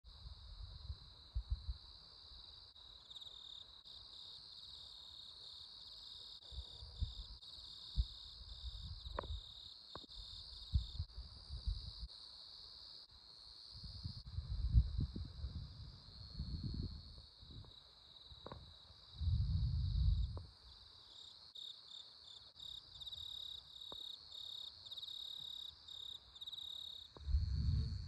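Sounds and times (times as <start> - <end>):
insects chirring: 0.2 - 28.0
low rumbles and buffets: 27.2 - 28.0.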